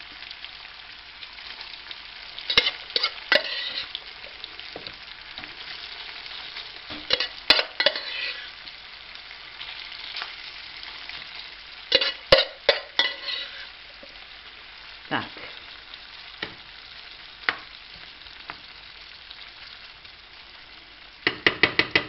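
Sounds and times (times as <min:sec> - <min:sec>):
food sizzling in frying pan: 0:00.0 - 0:22.0
metal utensil scraping pan: 0:02.4 - 0:04.0, 0:07.0 - 0:08.6, 0:11.9 - 0:13.8.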